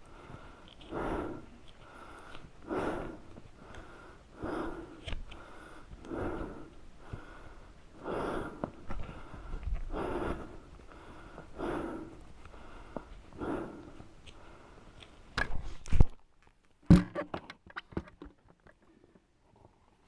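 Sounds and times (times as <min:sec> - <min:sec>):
man breathing hard: 0:00.0 - 0:15.0.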